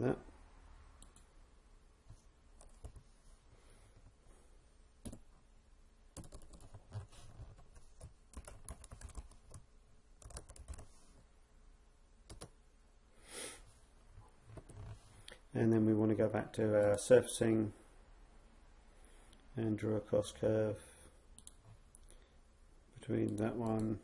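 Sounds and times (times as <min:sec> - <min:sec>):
keyboard typing: 0:02.6 - 0:03.0, 0:05.0 - 0:05.3, 0:06.2 - 0:09.6, 0:10.2 - 0:10.9, 0:12.3 - 0:12.6.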